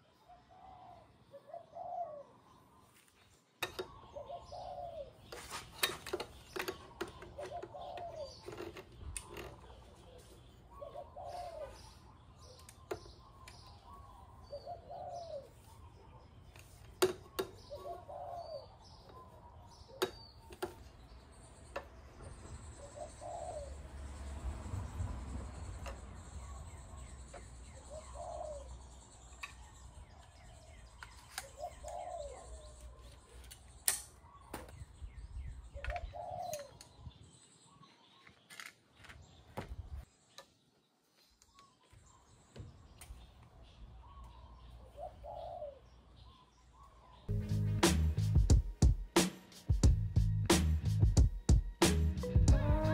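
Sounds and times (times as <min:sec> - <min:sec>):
dove cooing: 0:00.3 - 0:02.5, 0:03.8 - 0:05.3, 0:06.8 - 0:08.9, 0:09.6 - 0:12.6, 0:13.9 - 0:16.2, 0:17.2 - 0:20.1, 0:22.7 - 0:23.8, 0:27.7 - 0:28.9, 0:31.4 - 0:33.2, 0:35.7 - 0:36.8, 0:44.8 - 0:45.9.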